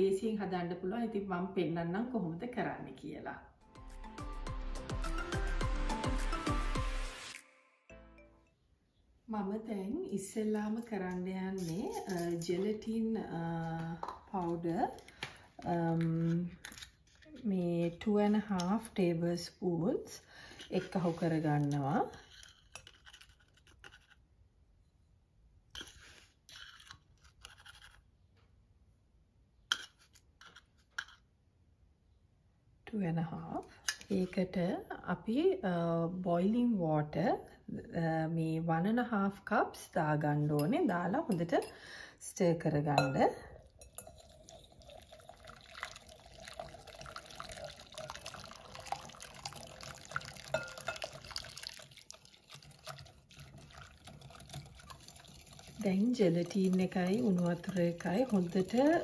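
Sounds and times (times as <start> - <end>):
spoon scraping in a tin: 11.4 - 12.9, 20.6 - 24.2, 25.8 - 28.1, 29.7 - 31.2
water trickling into bowl: 43.0 - 59.0
whisk clicking on glass: 43.8 - 59.0.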